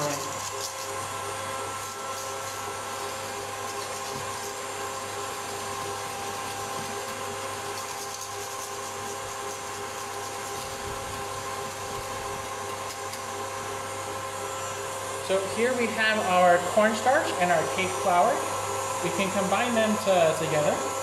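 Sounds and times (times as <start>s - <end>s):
whisk scraping in metal bowl: 0.0s - 13.8s
electric mixer motor running: 0.0s - 21.0s.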